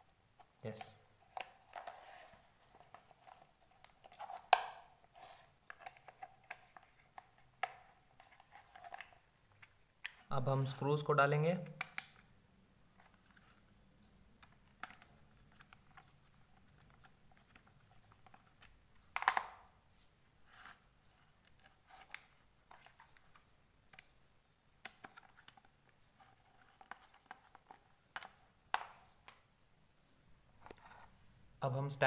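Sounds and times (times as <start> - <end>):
plastic clicks and taps: 11.6 - 12.2.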